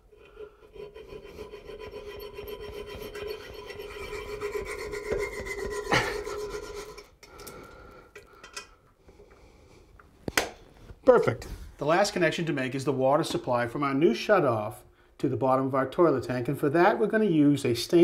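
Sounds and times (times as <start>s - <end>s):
hacksaw rasping on metal: 0.1s - 7.1s.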